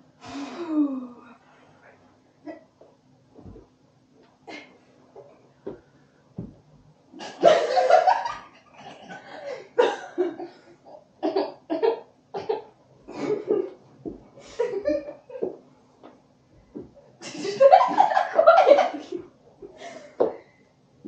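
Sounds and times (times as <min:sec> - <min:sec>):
faint steady hum: 0:00.0 - 0:21.0
young women laughing: 0:07.2 - 0:10.5, 0:14.4 - 0:15.6, 0:17.2 - 0:20.2.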